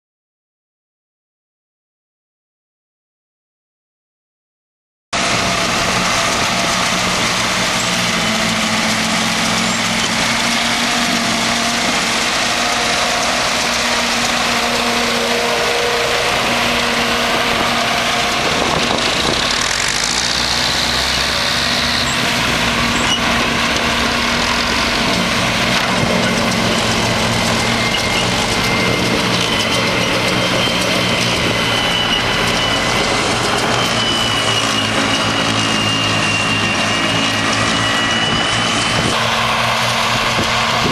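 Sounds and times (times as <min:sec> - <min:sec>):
forage harvester chopping grass: 0:05.2 - 0:40.9
tractor engine: 0:05.2 - 0:40.9.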